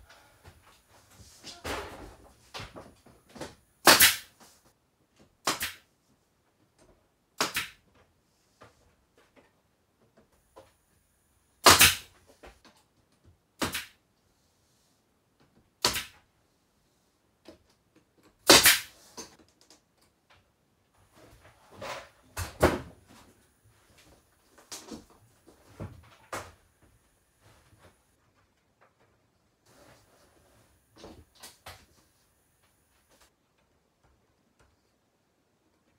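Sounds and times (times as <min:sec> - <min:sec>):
nail gun shots: 0:03.8 - 0:04.3, 0:05.4 - 0:05.8, 0:07.4 - 0:07.8, 0:11.6 - 0:12.1, 0:13.6 - 0:14.0, 0:15.8 - 0:16.2, 0:18.4 - 0:18.9.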